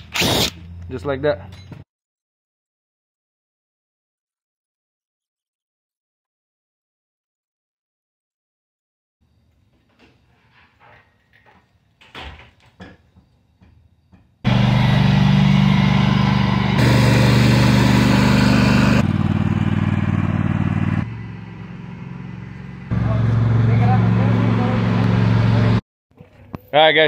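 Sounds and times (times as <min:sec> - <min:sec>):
lawn tractor engine running: 0:14.5 - 0:25.8.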